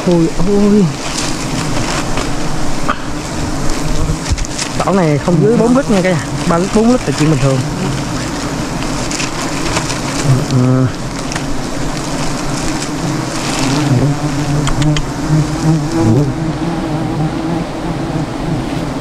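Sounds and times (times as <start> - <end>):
swarm of bees buzzing: 0.0 - 19.0
single bee swooping by: 12.5 - 19.0.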